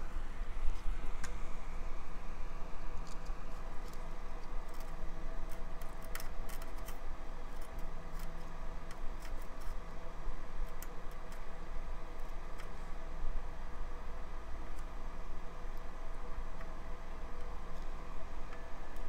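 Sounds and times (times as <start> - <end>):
steady low hum: 0.0 - 19.0
faint crackles and ticks: 2.9 - 9.8.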